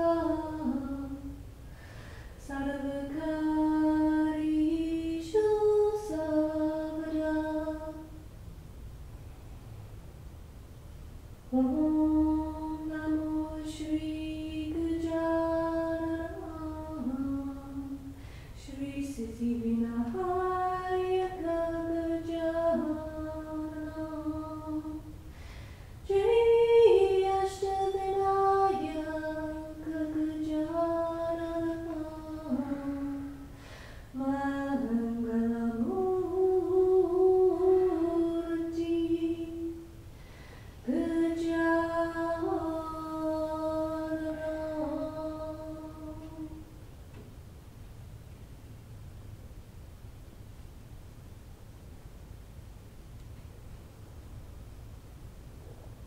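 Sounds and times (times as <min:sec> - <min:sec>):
woman singing a chant: 0:00.0 - 0:08.2, 0:11.5 - 0:25.4, 0:26.0 - 0:40.1, 0:40.8 - 0:46.7.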